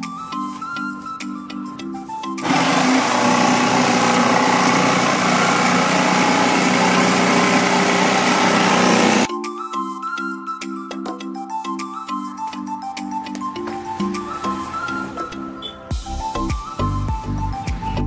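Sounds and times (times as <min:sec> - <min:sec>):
soft music: 0:00.0 - 0:02.5, 0:09.2 - 0:18.0
electric jigsaw cutting wood: 0:02.4 - 0:09.3.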